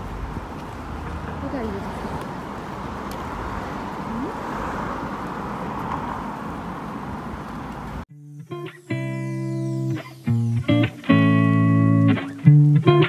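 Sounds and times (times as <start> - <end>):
road traffic hum: 0.0 - 8.1.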